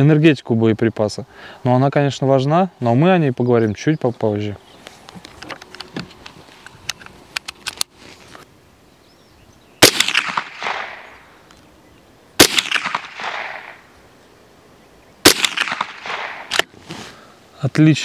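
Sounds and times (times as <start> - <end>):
rifle shots with echo: 9.8 - 11.3, 12.4 - 13.9, 15.2 - 16.7.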